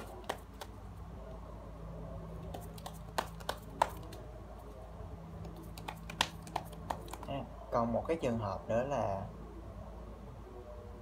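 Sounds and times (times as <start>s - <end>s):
steady low hum: 0.0s - 11.0s
sharp clicks and taps: 2.5s - 4.2s, 5.4s - 7.3s.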